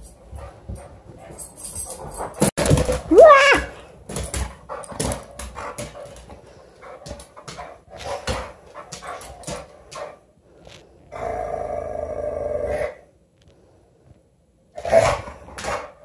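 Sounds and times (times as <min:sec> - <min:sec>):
dog growling: 0:11.1 - 0:13.0.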